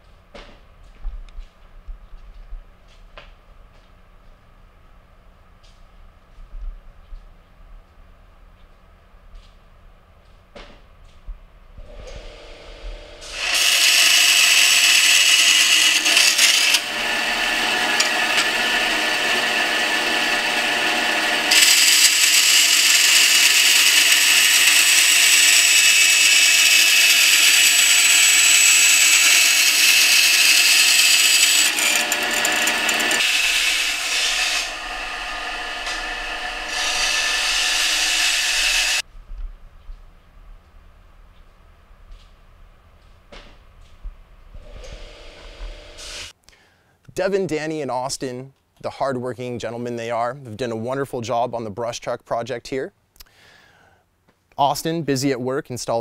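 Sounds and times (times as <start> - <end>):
band saw rasping hiss: 11.9 - 39.0, 44.6 - 46.3.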